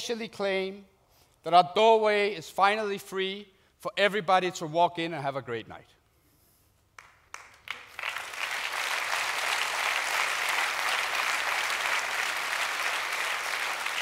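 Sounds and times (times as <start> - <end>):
large audience applauding: 7.0 - 14.0.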